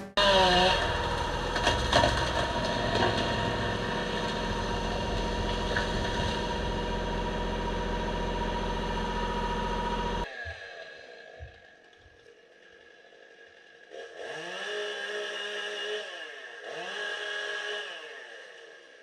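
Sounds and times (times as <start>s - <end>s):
engine running: 0.0s - 12.0s
tree cracking as it falls: 0.6s - 7.5s.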